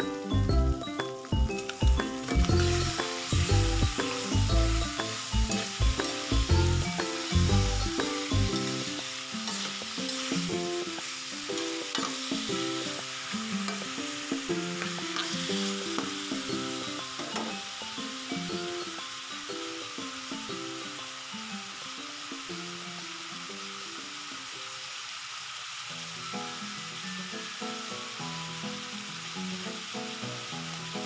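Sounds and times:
background music: 0.0 - 23.2
chicken sizzling in a pan: 0.0 - 31.0.

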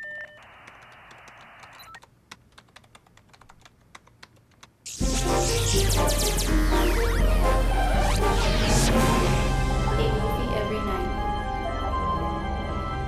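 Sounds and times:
dial-up modem hiss: 0.0 - 2.0, 4.9 - 9.8
laptop keys typing: 0.0 - 4.9
loud music: 4.9 - 13.0.

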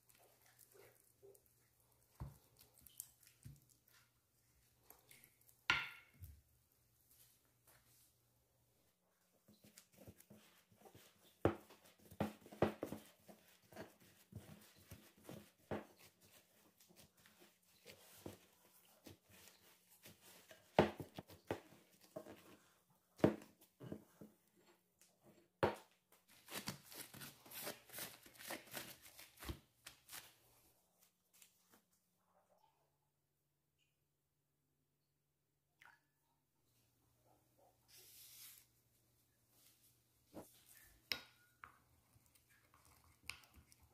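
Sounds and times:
dough knocking and squishing: 2.0 - 4.1, 5.2 - 6.5, 9.6 - 30.3.

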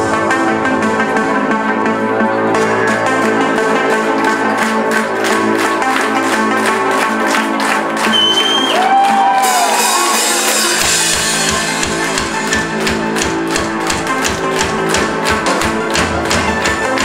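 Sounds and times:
audience shouting and cheering: 3.6 - 17.0
live ska-punk band playing: 9.4 - 12.9
kick drum beat: 10.9 - 17.0.

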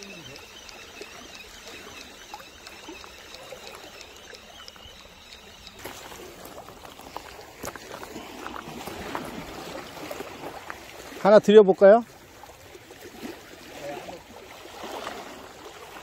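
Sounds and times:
sharp clicks: 0.0 - 5.8
seawater lapping on rocks: 0.0 - 16.0.

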